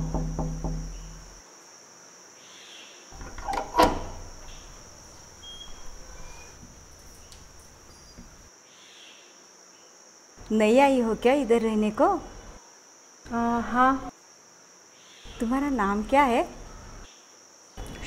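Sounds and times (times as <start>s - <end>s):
high insect-like hiss: 0.0s - 18.0s
door lock and latch clicking: 3.2s - 4.5s.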